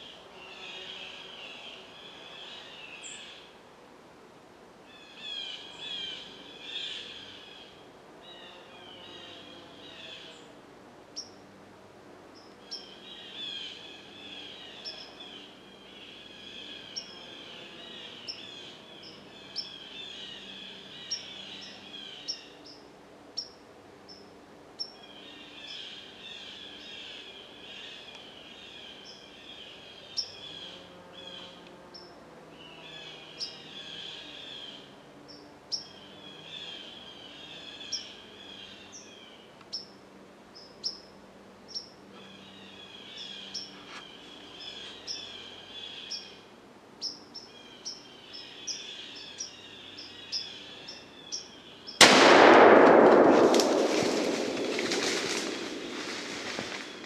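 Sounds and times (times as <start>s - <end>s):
small birds chirping and singing: 12.4s - 22.8s, 23.4s - 52.0s
gunshot: 52.0s - 57.0s.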